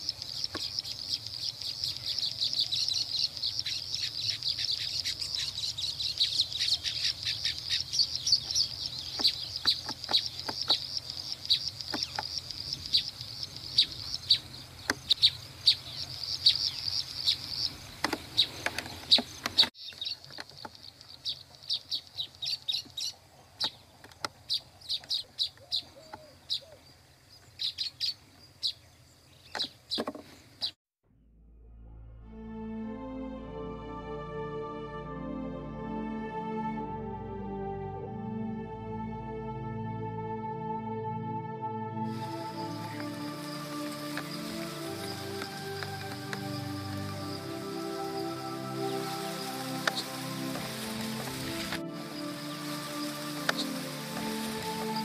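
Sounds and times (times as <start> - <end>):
birds chirping rapidly: 0.0 - 30.8, 42.1 - 55.0.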